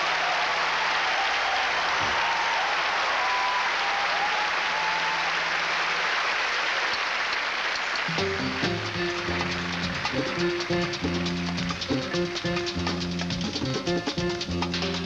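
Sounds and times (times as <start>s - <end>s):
audience applauding: 0.0s - 15.0s
band playing: 8.1s - 15.0s.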